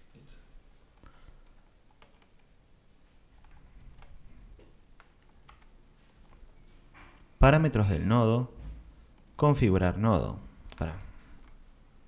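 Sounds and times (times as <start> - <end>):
faint clicks and taps: 0.9 - 7.2, 10.5 - 11.6.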